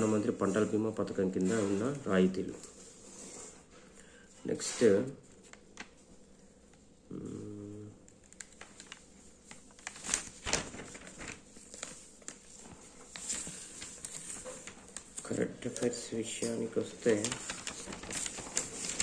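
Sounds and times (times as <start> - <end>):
newspaper pages rustling: 0.0 - 6.9, 8.1 - 19.0.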